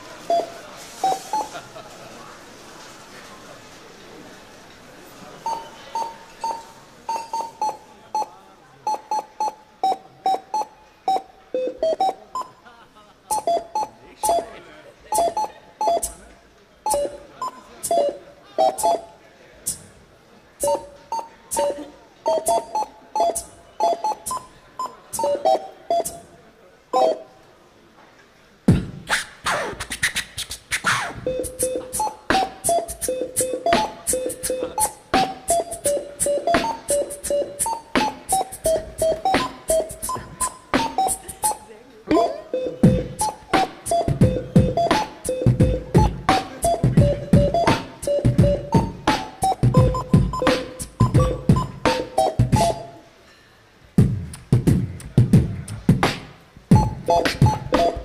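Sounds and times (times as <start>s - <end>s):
barcode scanner beeps melody: 0.3s - 1.5s, 5.4s - 12.6s, 13.3s - 14.5s, 15.1s - 16.2s, 16.9s - 19.1s, 20.6s - 26.3s, 27.0s - 27.2s, 31.2s - 52.9s, 56.7s - 58.0s.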